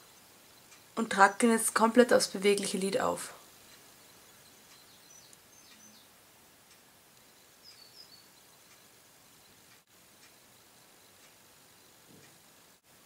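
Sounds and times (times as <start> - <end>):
faint room hiss: 0.0 - 13.0
faint high chirps: 3.7 - 6.1, 7.2 - 12.4.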